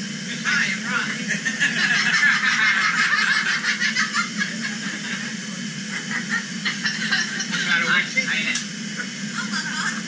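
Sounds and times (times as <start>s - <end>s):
people laughing: 1.1s - 8.0s, 9.4s - 10.0s.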